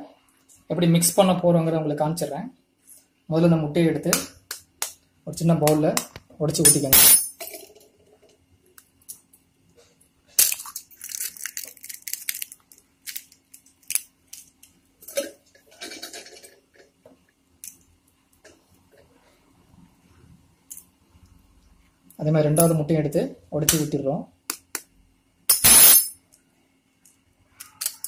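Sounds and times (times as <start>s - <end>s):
eggshell breaking apart: 10.4s - 14.1s.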